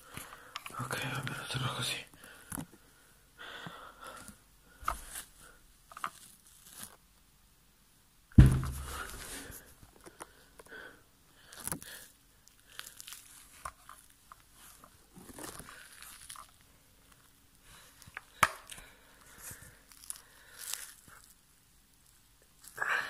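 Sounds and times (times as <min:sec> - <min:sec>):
rustling and handling noise: 0:00.0 - 0:07.3, 0:08.4 - 0:10.8, 0:11.4 - 0:22.8
heavy thump: 0:08.3 - 0:09.3.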